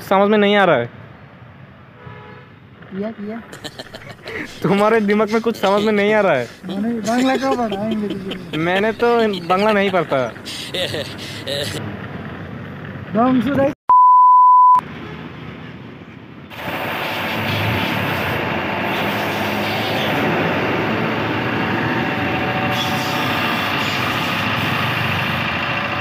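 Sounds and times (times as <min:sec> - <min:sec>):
high test-tone beep: 0:13.9 - 0:14.8.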